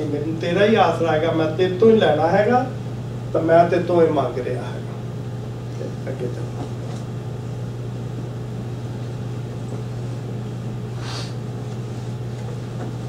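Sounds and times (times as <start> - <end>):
low electrical hum: 0.0 - 13.0
breathy hiss: 10.9 - 11.4.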